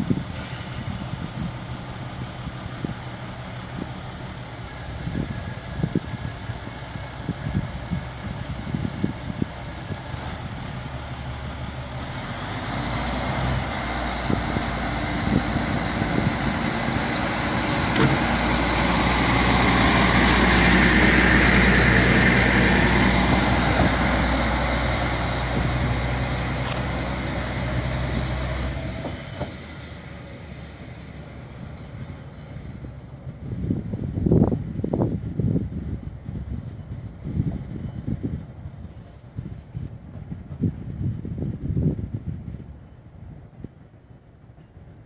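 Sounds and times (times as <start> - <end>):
diesel railcar engine: 0.0 - 45.0
sharp clicks: 26.6 - 26.9.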